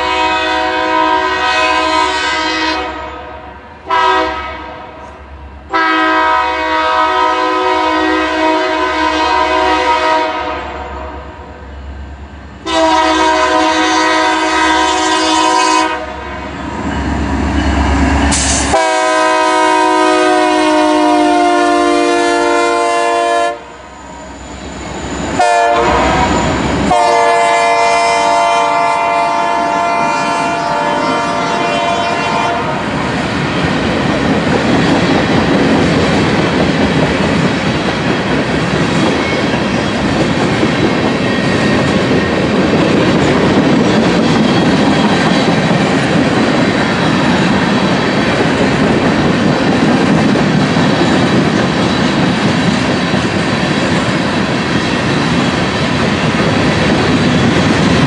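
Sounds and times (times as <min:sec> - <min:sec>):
locomotive air horn blasts: 0:00.0 - 0:03.3, 0:03.9 - 0:05.0, 0:05.7 - 0:11.2, 0:12.7 - 0:16.3, 0:18.6 - 0:23.8, 0:25.4 - 0:32.9.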